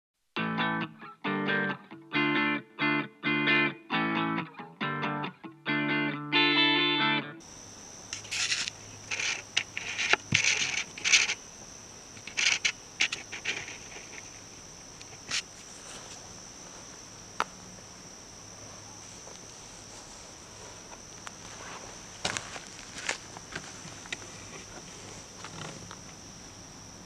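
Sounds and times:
insects chirring: 0:00.5 - 0:27.0
short scratchy noises: 0:08.1 - 0:11.4.

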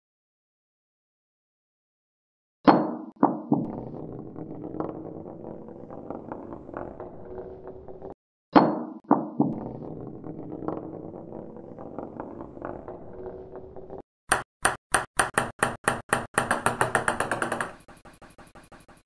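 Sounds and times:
bowling ball rolling across floor: 0:03.6 - 0:08.2, 0:09.4 - 0:14.0, 0:16.7 - 0:18.6
ping pong ball bouncing: 0:14.3 - 0:17.8.

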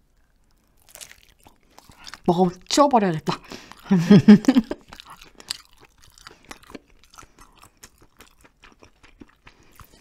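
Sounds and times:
chewing mouth clicks: 0:00.2 - 0:02.3, 0:04.6 - 0:10.0.

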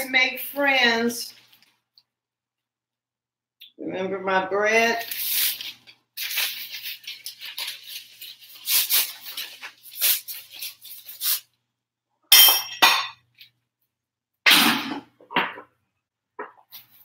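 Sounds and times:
paper bag rustling and crinkling: 0:05.0 - 0:11.4.

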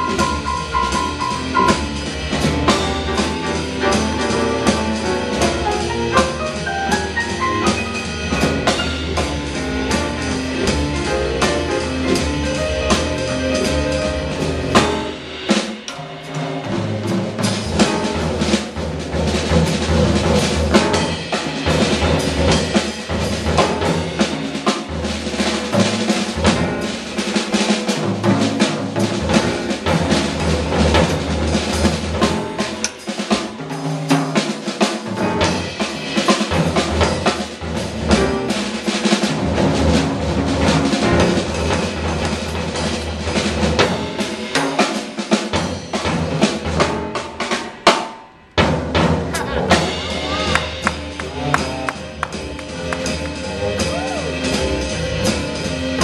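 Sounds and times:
jazz trio playing blues: 0:00.0 - 0:48.0, 0:48.6 - 0:56.0
drum kit: 0:00.0 - 0:56.0
grand piano: 0:00.0 - 0:56.0
walking electric bass: 0:49.2 - 0:56.0.

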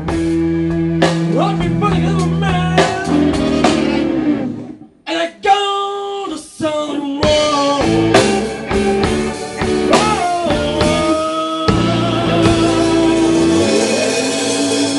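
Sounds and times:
live rock band playing: 0:00.0 - 0:05.0, 0:06.6 - 0:14.9
lead guitar held notes: 0:01.2 - 0:04.9.

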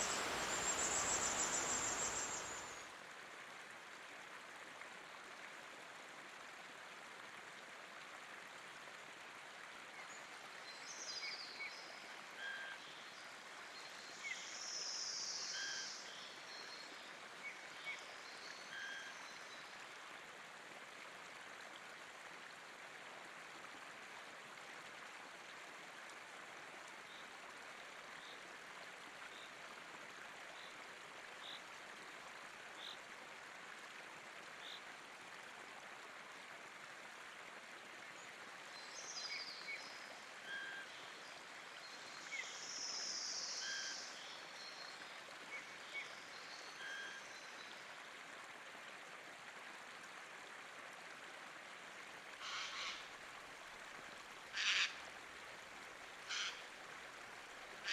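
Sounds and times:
small birds chirping: 0:00.0 - 0:02.8
river water running over stones: 0:00.0 - 0:57.9.

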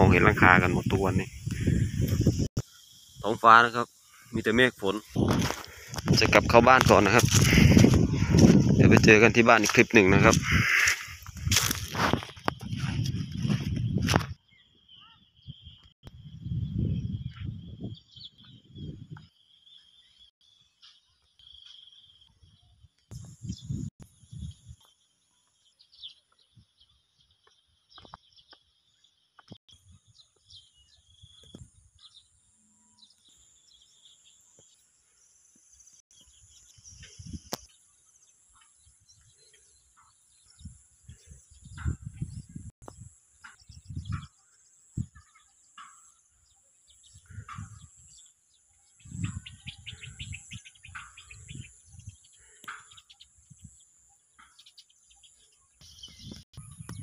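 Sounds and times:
birds chirping and calling: 0:00.0 - 0:24.8, 0:35.9 - 0:57.0
low rumbling microphone bumps: 0:05.1 - 0:14.4, 0:15.4 - 0:19.3.

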